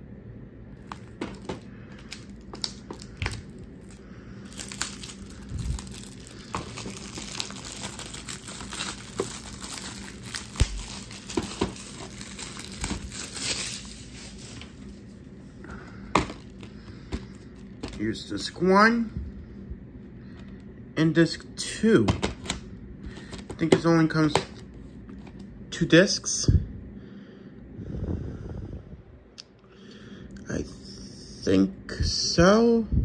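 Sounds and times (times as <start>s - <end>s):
plastic wrap crinkling and tearing: 0.8s - 15.2s, 16.2s - 18.1s
plastic case clicks and knocks: 22.0s - 22.6s.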